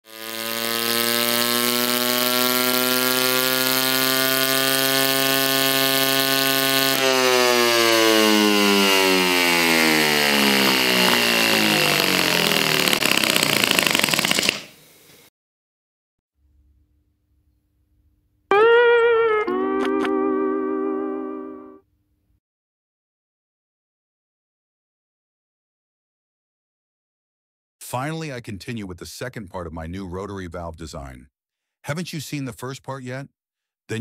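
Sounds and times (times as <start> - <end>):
model engine running at high speed: 0.0 - 14.6.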